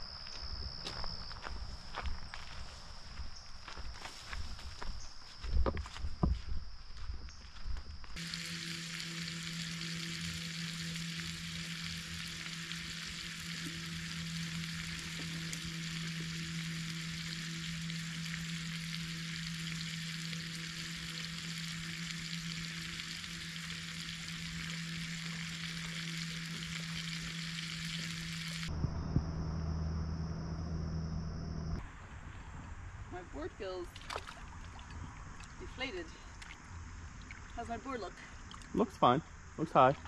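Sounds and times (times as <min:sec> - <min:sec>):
low hum: 0:00.0 - 0:40.0
bacon sizzling in a skillet: 0:08.2 - 0:28.7.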